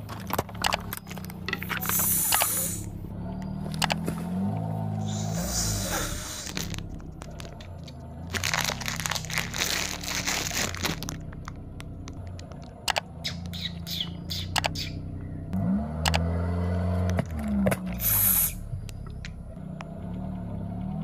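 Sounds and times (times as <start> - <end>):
car engine rising: 0.0 - 21.0
tyre crushing crunchy objects: 4.0 - 12.7.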